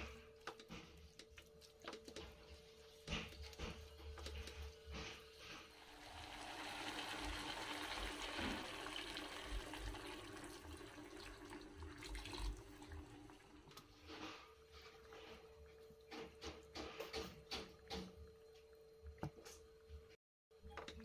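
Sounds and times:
water pouring into wok: 5.7s - 13.7s.

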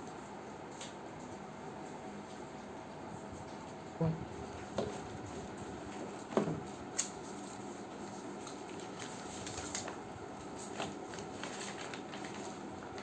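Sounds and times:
paper rustling and crinkling: 4.7s - 13.0s.

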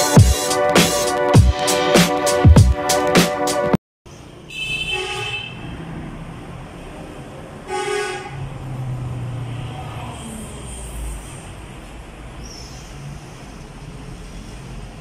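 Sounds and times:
traffic noise: 4.1s - 15.0s
vehicle horn toots: 4.5s - 5.7s, 7.7s - 8.4s.

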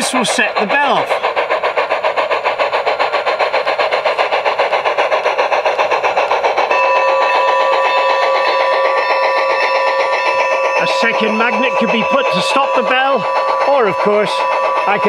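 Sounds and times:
steam chuffing from speaker: 0.0s - 15.0s
locomotive bell ringing: 6.7s - 15.0s.

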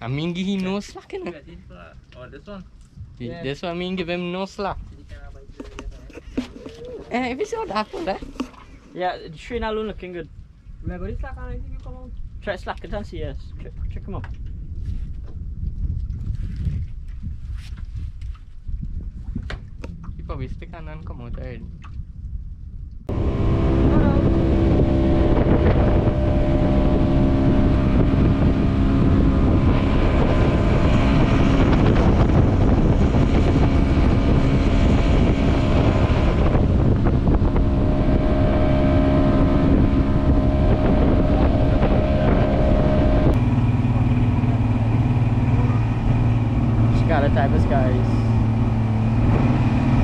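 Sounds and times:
outboard motor running: 0.0s - 9.2s, 23.1s - 50.0s
wind rushing: 21.6s - 50.0s
water rushing past: 23.1s - 50.0s.

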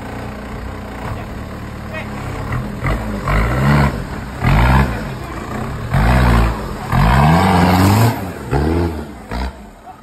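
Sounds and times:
off-road vehicle engine revving: 0.0s - 10.0s.

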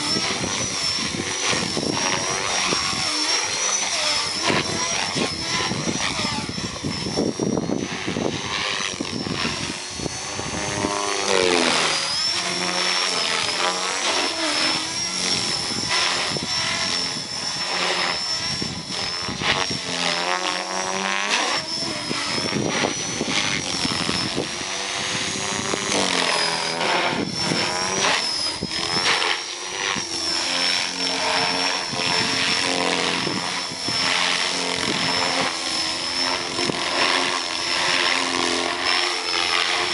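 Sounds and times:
helicopter rotor noise: 0.0s - 39.9s
high whine of electric motor: 0.0s - 39.9s.

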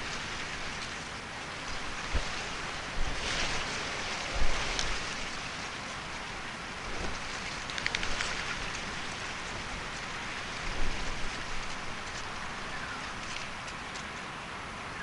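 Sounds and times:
rain hissing: 0.0s - 13.7s.

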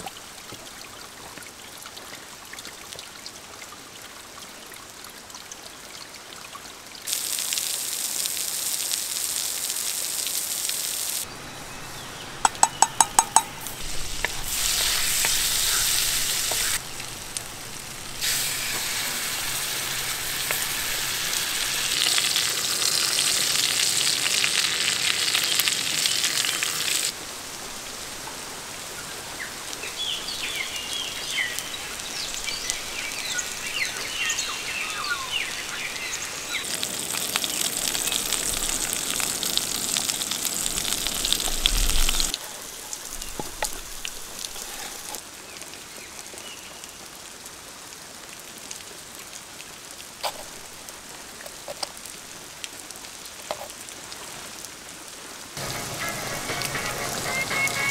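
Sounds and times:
meat sizzling in a frying pan: 7.1s - 11.3s, 13.1s - 27.2s, 30.0s - 42.4s.

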